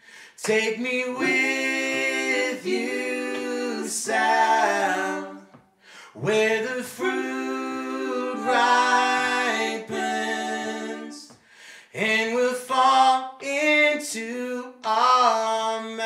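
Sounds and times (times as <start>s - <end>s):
men singing in harmony: 0.4s - 5.6s, 6.2s - 11.4s.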